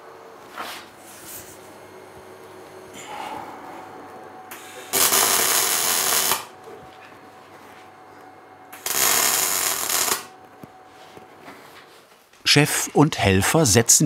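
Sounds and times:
arc welding crackle: 4.0s - 7.5s, 8.6s - 11.3s.

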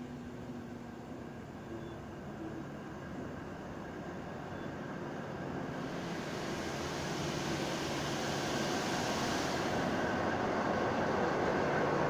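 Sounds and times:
diesel locomotives approaching: 0.0s - 12.0s
rising hiss: 5.7s - 11.3s.

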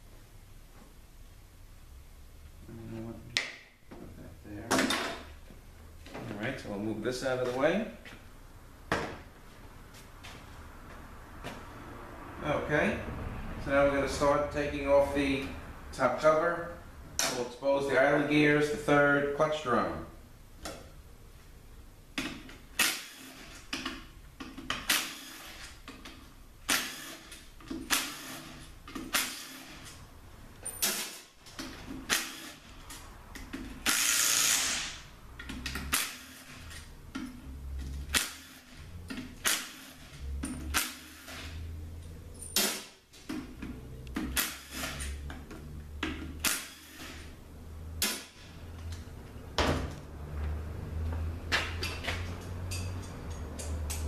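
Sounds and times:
sharp metallic clicks and knocks: 51.5s - 54.0s.

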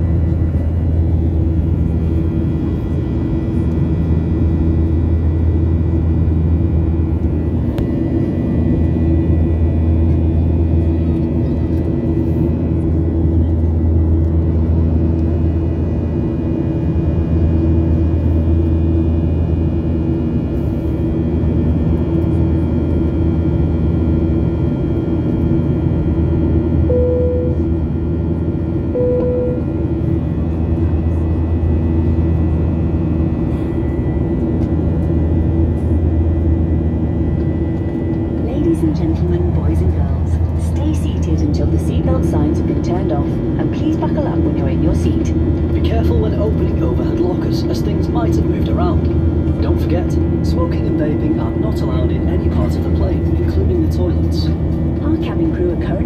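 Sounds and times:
jet airliner cabin drone: 0.0s - 56.0s
brief tones: 26.9s - 27.6s, 28.9s - 29.8s.

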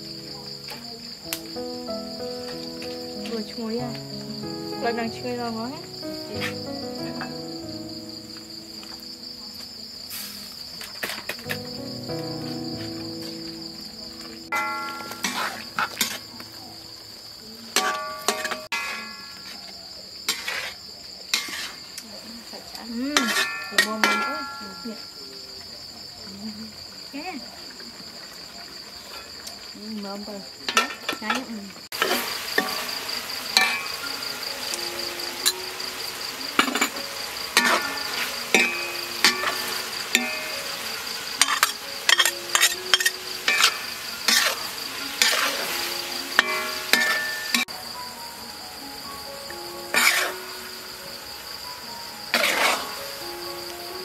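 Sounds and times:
crickets chirping: 0.0s - 54.0s
food sizzling: 0.0s - 54.0s
high insect trill: 0.0s - 54.0s
metal spatula scraping wok: 20.3s - 20.8s, 21.4s - 21.8s, 36.6s - 40.5s, 41.3s - 47.7s, 49.9s - 50.5s, 52.3s - 53.0s.

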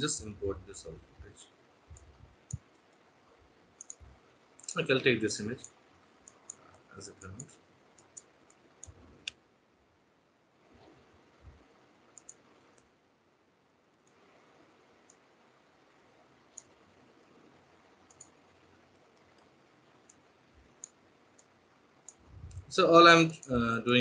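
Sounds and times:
computer mouse clicks: 1.9s - 3.1s, 3.8s - 5.0s, 5.6s - 9.4s, 12.1s - 12.9s, 14.0s - 14.2s, 15.0s - 15.2s, 16.5s - 16.8s, 18.0s - 22.7s.

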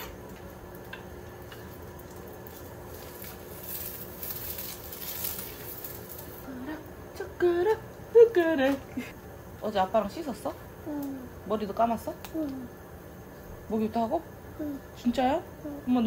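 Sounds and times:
egg sizzling in a pan: 0.0s - 6.5s.

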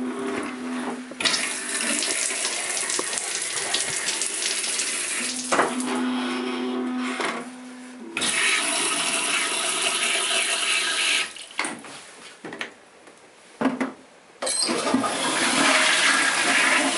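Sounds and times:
toilet water rushing: 1.2s - 5.8s, 8.2s - 11.5s, 14.7s - 16.9s
water running with hum: 1.2s - 6.0s.

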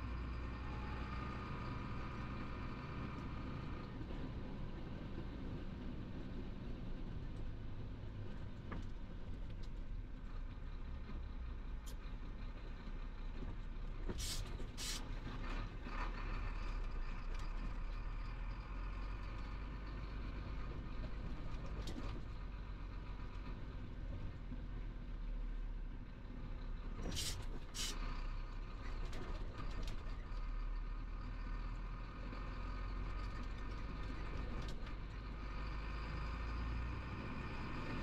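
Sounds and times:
truck engine and tyres rumble: 0.0s - 38.0s
short sharp hisses: 14.2s - 15.0s, 27.2s - 28.0s.

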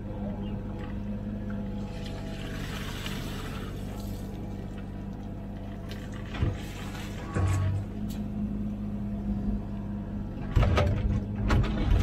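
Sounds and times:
excavator diesel engine running: 0.0s - 12.0s
mud squelching and splashing: 1.8s - 4.8s, 5.7s - 7.4s.

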